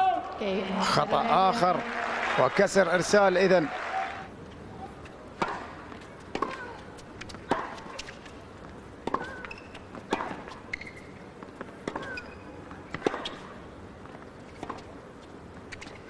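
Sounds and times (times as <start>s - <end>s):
racket striking ball: 5.4s - 8.3s, 9.0s - 10.6s, 11.8s - 13.5s
shoe squeaks on court: 9.2s - 11.3s, 11.9s - 12.6s, 15.6s - 16.0s.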